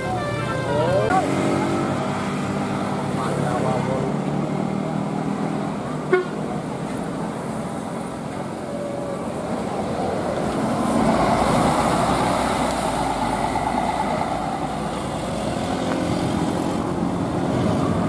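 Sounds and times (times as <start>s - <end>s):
bus horn melody: 0.0s - 1.2s, 6.1s - 6.4s
coach engine and tyre noise: 0.0s - 18.0s.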